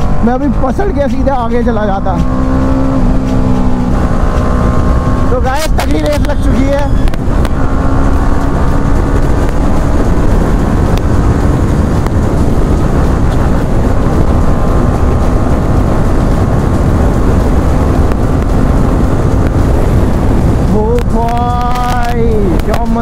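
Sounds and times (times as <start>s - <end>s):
motorcycle engine at speed: 0.0s - 23.0s
wind rushing over microphone: 0.0s - 23.0s.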